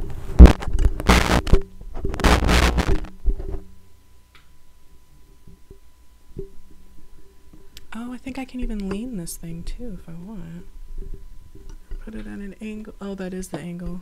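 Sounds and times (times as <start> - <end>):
microphone handling rustling: 0.0 - 3.7.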